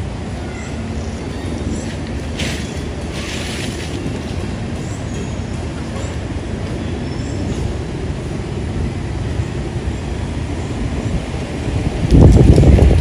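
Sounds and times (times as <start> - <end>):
wind buffeting microphone: 7.4 - 13.0.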